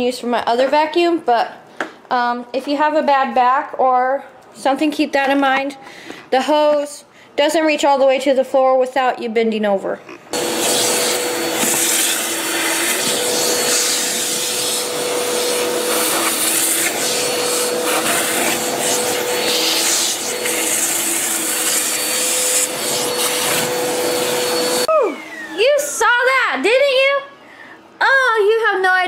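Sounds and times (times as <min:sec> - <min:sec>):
vacuum cleaner running: 0:10.3 - 0:26.5.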